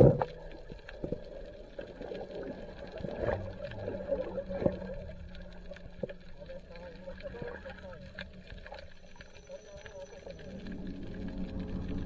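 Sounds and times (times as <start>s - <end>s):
muffled underwater hum: 0.0s - 12.0s
wavering drone: 10.1s - 12.0s.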